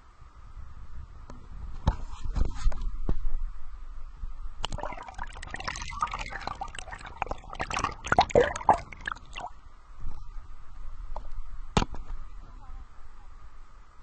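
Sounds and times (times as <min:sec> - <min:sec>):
faint steady hum: 0:00.0 - 0:14.0
water sloshing and bubbling: 0:04.6 - 0:09.6.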